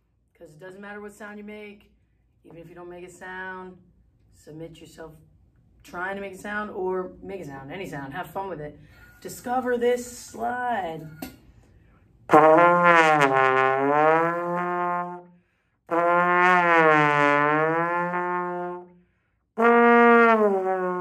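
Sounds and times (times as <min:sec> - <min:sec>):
trombone long notes: 0:12.3 - 0:19.0, 0:19.6 - 0:21.0.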